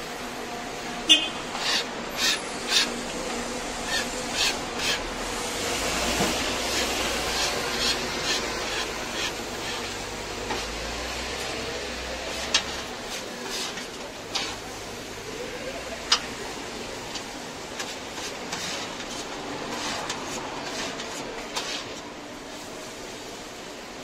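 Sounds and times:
spatula scraping on griddle: 1.6 - 10.8, 12.3 - 14.6, 17.7 - 22.6.

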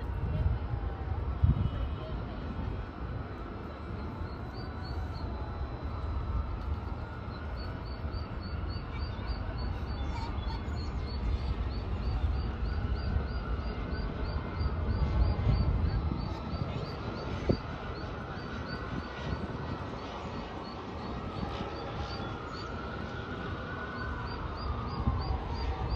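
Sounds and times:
steady low rumble: 5.2 - 22.1.

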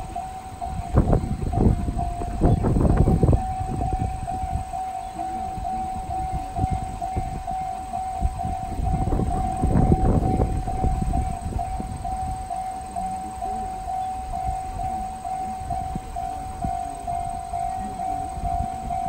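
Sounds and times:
level crossing electronic bell: 0.0 - 19.0.

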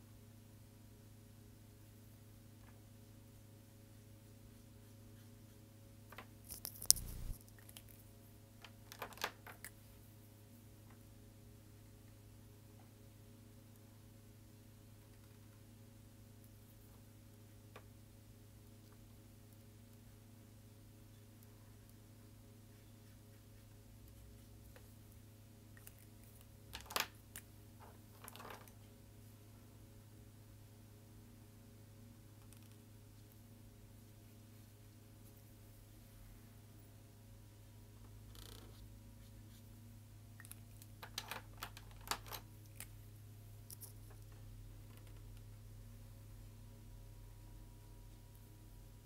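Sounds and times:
faint steady hum: 0.0 - 49.0
marker scratching on paper: 6.9 - 7.4.

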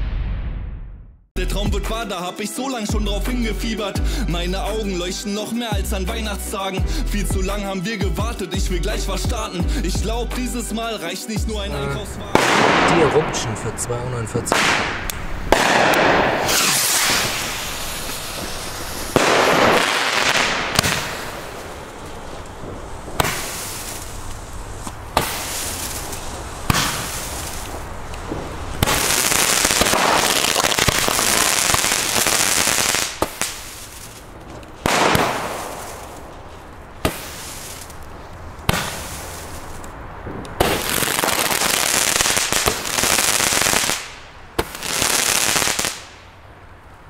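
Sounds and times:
firework launch reports: 11.5 - 46.1
hissing rush of sparks: 14.6 - 40.0.

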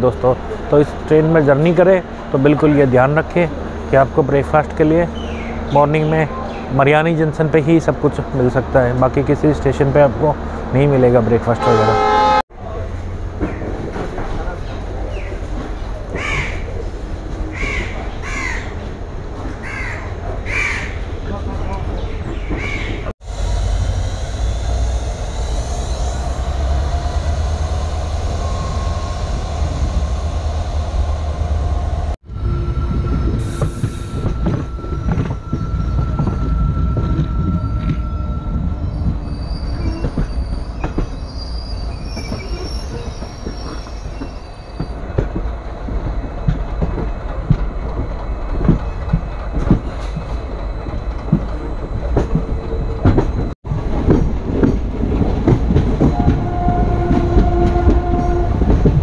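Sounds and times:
train coaches rumbling: 0.0 - 59.0
wheel squeal: 32.6 - 45.0
wheels clacking over rail joints: 42.1 - 59.0.

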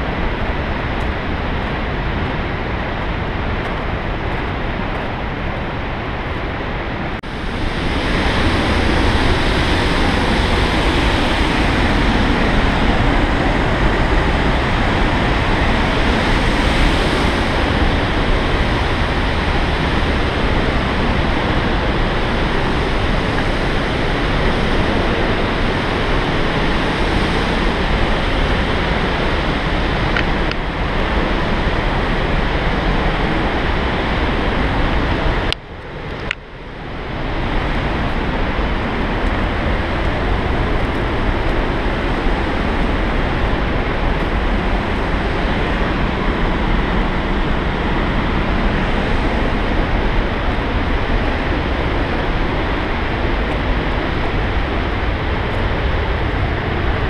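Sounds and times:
rushing water roar: 0.0 - 57.0.

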